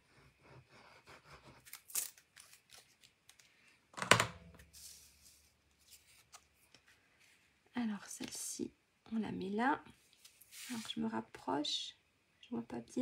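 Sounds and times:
paper rustling: 4.5 - 7.5.

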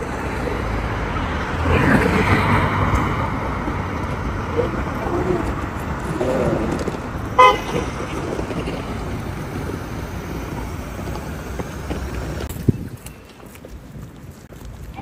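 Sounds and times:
city street traffic: 0.0 - 15.0
car horn toot: 7.4 - 7.9.

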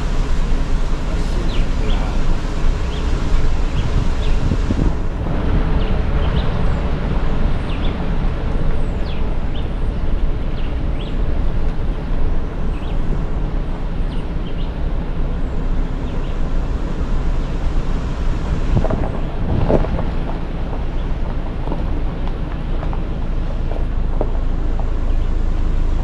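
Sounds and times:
vehicle rumble: 0.0 - 26.0
wind buffeting microphone: 0.0 - 26.0.

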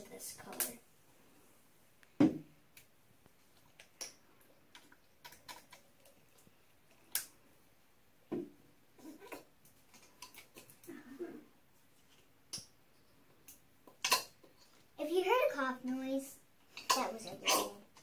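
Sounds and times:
knock on table: 2.2 - 2.5.

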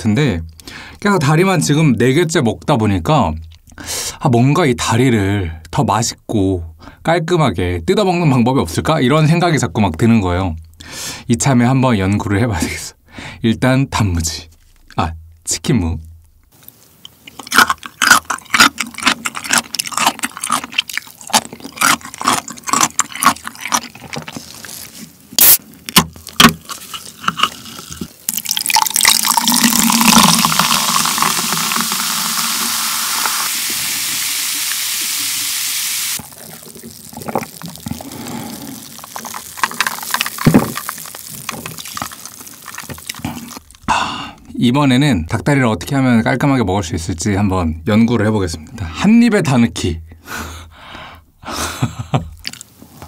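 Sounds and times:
crunchy chewing: 16.6 - 32.7, 36.2 - 43.9, 52.4 - 52.7
ice clicking: 25.9 - 33.9, 36.2 - 43.8
soda fizzing: 28.1 - 43.8
cola pouring into glass with ice: 28.2 - 43.7.

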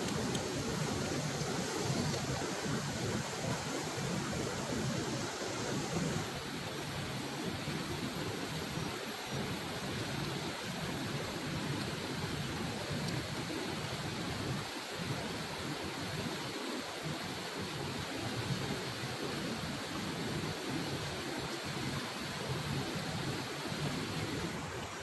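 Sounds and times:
river water rushing over rocks: 0.0 - 25.0.

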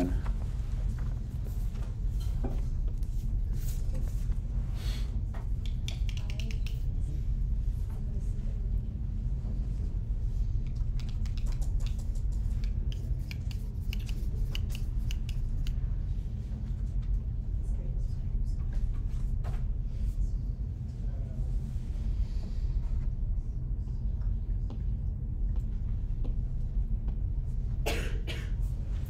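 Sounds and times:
steady low hum: 0.0 - 29.0
small clicks and taps at desks: 5.4 - 6.9, 10.6 - 15.9.

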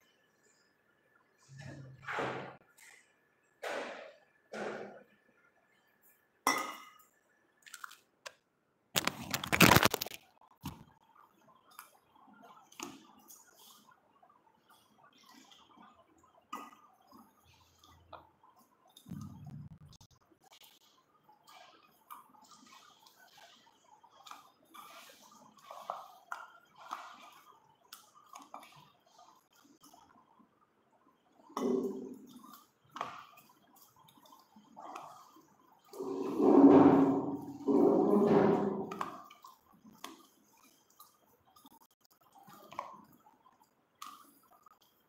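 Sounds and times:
hand squishing flour mixture: 9.0 - 45.0
hands squishing dough: 17.1 - 30.1.

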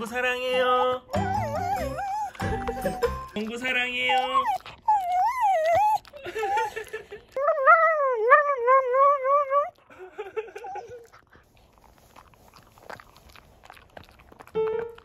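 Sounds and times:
dog howling: 0.4 - 3.4, 4.0 - 6.2.

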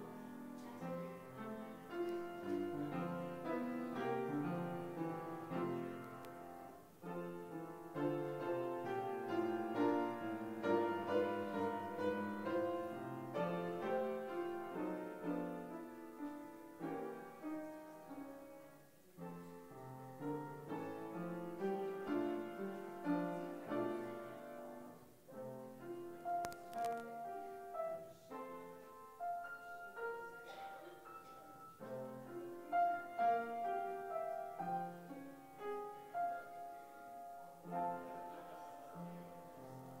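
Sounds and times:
piano playing: 0.0 - 40.0
faint clicks: 26.3 - 27.2.

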